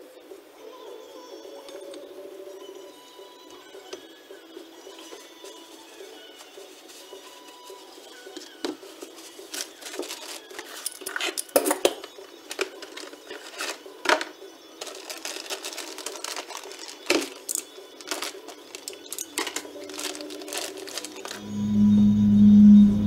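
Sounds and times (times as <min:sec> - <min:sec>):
packaging rustling: 0:04.8 - 0:21.4
metal parts clinking on workbench: 0:09.5 - 0:21.4.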